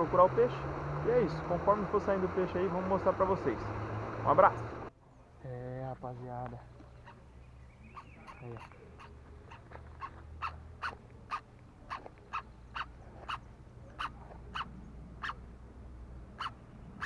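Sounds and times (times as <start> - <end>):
animal calling: 6.9 - 15.5, 16.4 - 17.0.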